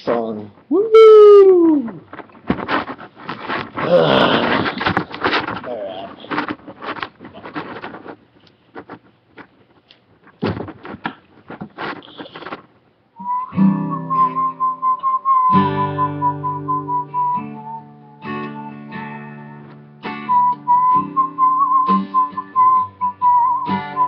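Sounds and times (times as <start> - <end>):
handling knocks and clicks: 6.3 - 12.7
person whistling a melody: 13.2 - 19.6, 20.2 - 24.0
guitar playing chords: 13.3 - 24.0.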